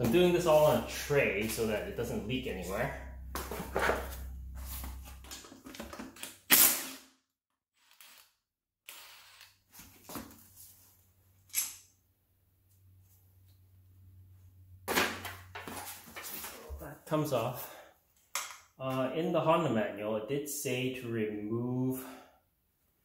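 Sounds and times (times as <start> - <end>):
metal case scraping and knocking: 3.3 - 6.2.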